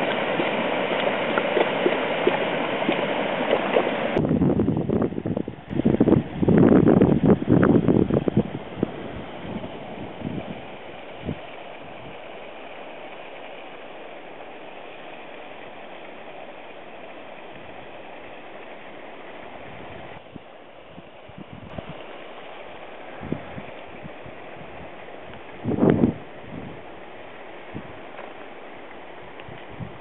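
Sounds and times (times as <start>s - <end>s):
wind thumping on microphone: 0.0s - 12.3s, 19.5s - 30.0s.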